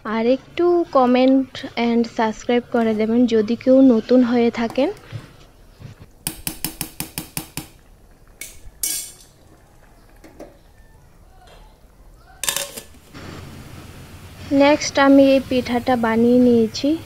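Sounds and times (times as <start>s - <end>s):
metal utensil tapping steel pot: 8.4s - 9.3s, 12.4s - 12.9s.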